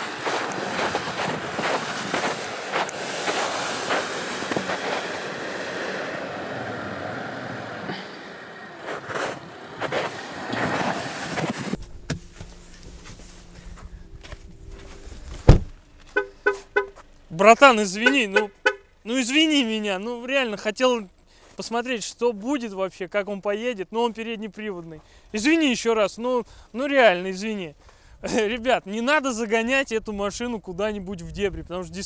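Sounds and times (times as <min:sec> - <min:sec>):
faint low hum: 0:11.8 - 0:16.4.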